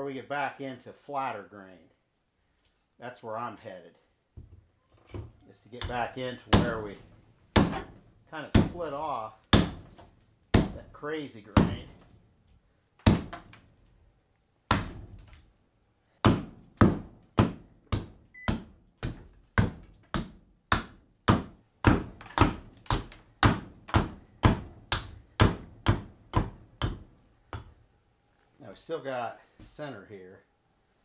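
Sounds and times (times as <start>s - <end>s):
hatchet chopping wood: 5.8s - 8.9s, 9.5s - 10.9s, 11.5s - 12.1s, 13.0s - 13.6s, 14.7s - 15.4s, 16.2s - 27.7s.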